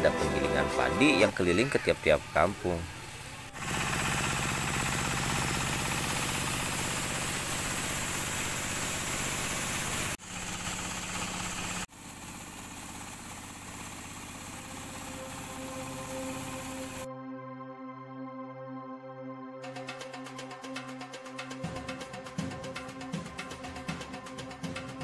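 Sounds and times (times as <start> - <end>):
rice mill engine humming: 0.0 - 17.1.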